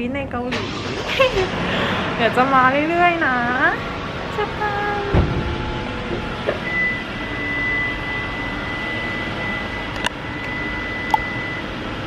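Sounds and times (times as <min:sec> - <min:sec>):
mechanical rushing noise: 0:00.5 - 0:07.4.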